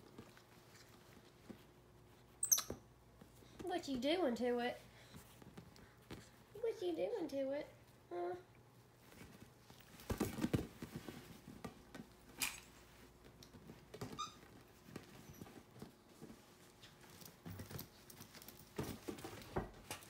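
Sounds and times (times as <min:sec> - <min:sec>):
monkey squeak: 0:02.4 - 0:02.8.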